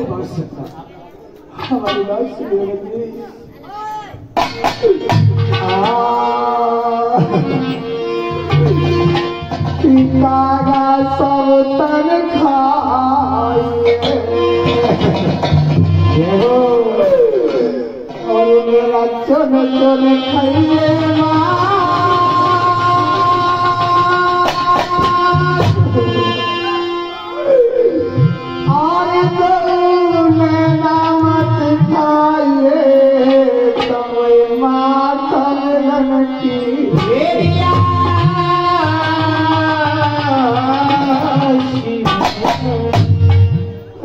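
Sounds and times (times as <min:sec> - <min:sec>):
folk melody with sliding notes: 0:04.3 - 0:44.0
hand drum: 0:04.4 - 0:06.2, 0:13.6 - 0:16.5, 0:22.1 - 0:26.4, 0:37.0 - 0:44.0.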